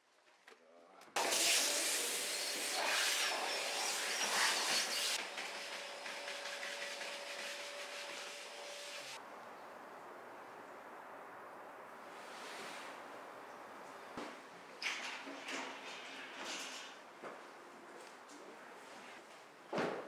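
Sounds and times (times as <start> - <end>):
vacuum cleaner running: 1.2 - 9.2.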